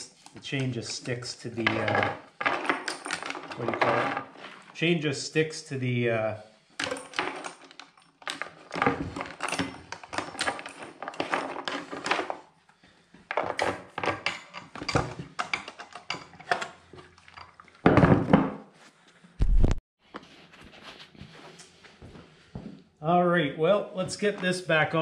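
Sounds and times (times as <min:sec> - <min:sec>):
chainsaw chain rattling: 0:06.8 - 0:12.3.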